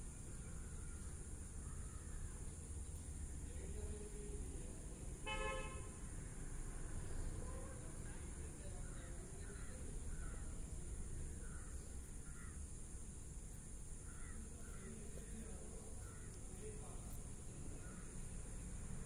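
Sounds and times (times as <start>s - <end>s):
crows cawing: 0.6s - 2.4s, 11.3s - 12.7s, 14.0s - 15.0s, 16.0s - 16.4s, 17.8s - 18.2s.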